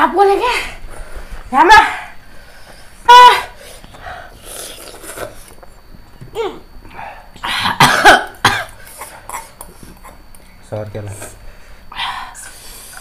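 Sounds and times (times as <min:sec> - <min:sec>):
person coughing harshly: 0:07.5 - 0:09.6.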